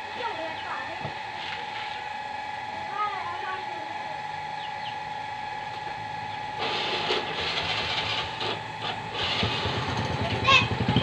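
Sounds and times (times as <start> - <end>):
small motorcycle engine running: 0.0 - 11.0.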